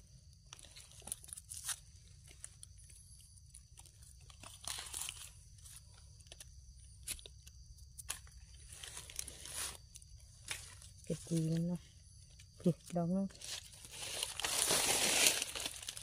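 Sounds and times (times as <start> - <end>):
dry leaves rustling under hands: 4.2 - 5.8, 8.6 - 11.8, 13.3 - 16.0.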